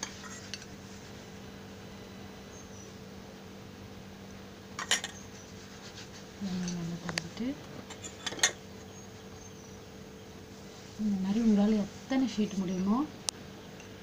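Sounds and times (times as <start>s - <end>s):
steady low hum: 0.0s - 14.0s
kitchen utensils clinking: 4.8s - 5.2s, 7.9s - 8.6s.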